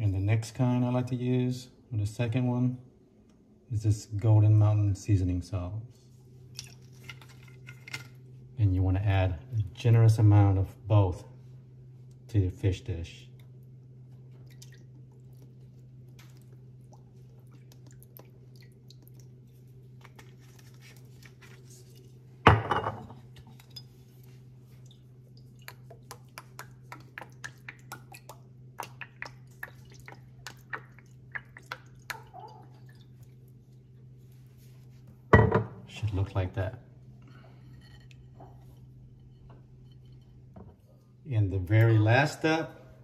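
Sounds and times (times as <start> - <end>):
steady low hum: 0.0 - 43.0
sauce clicking and dripping into bowl: 13.3 - 20.3, 24.7 - 33.6
bottle knocking on counter: 22.5 - 23.1, 35.4 - 35.7.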